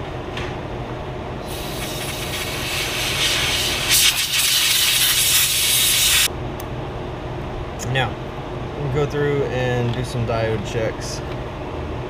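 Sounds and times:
pressurised spray hissing: 1.4s - 6.3s.

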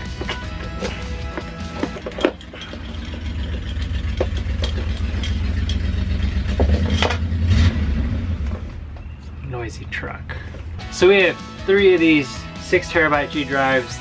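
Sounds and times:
truck engine rumbling: 0.0s - 12.8s.

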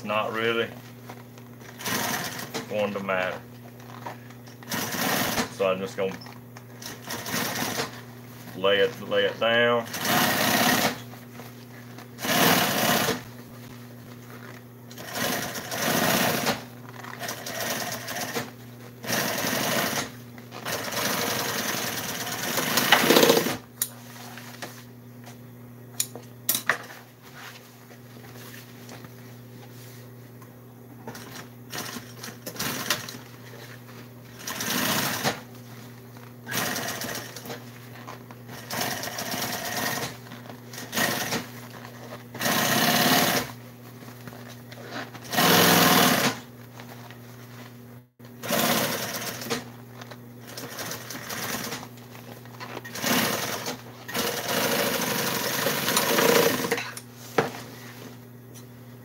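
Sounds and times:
sewing machine stitching: 9.9s - 11.0s, 12.2s - 13.2s, 15.0s - 23.6s, 36.5s - 37.5s, 42.4s - 43.6s, 45.2s - 46.4s, 48.4s - 49.7s, 52.9s - 56.8s.

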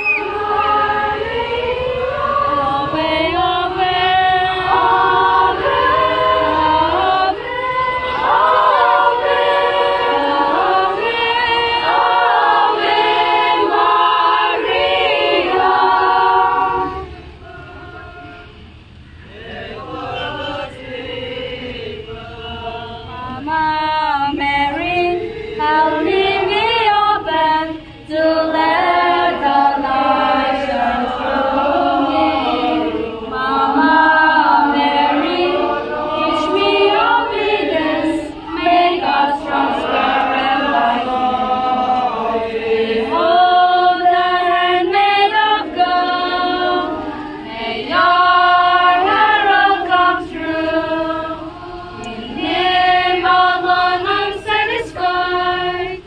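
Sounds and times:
group singing a hymn: 0.0s - 56.0s.

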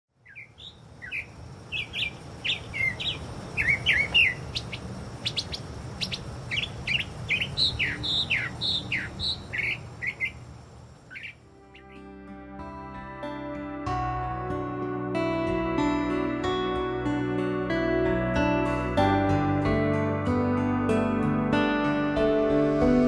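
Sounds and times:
bird singing chirps and whistles: 0.2s - 10.4s, 11.1s - 12.0s
soft music: 11.4s - 23.0s.

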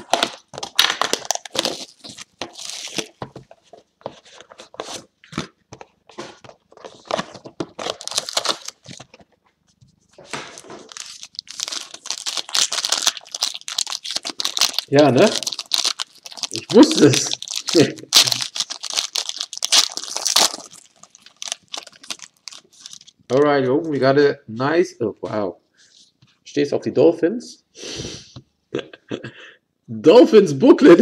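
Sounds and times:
wrapper crinkling and tearing: 0.0s - 3.2s, 6.9s - 9.2s, 10.3s - 23.3s.

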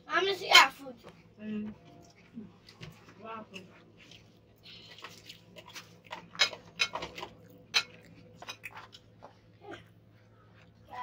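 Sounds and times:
spoons clinking on plates: 6.1s - 8.8s.

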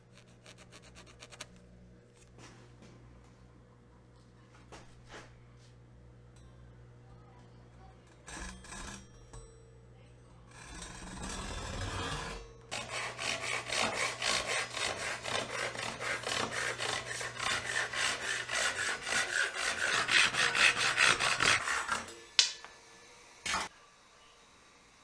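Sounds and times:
hand saw cutting wood: 10.5s - 22.5s, 23.5s - 23.7s.

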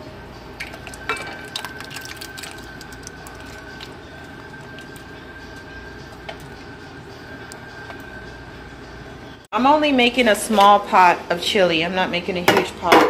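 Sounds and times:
steady hum with high whine: 0.0s - 9.7s.

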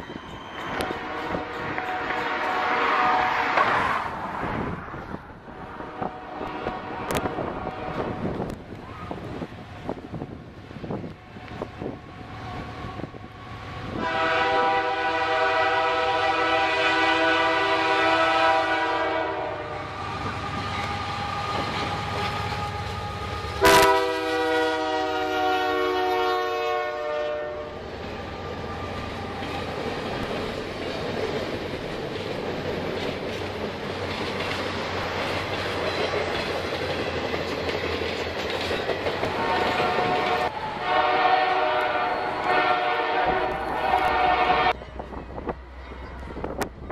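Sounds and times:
train cars rumbling past: 0.0s - 46.9s
locomotive air horn blasts: 0.7s - 4.0s, 5.7s - 8.5s, 13.8s - 21.8s, 22.5s - 27.8s, 39.3s - 44.8s
wheels clacking over rails: 27.9s - 40.6s.

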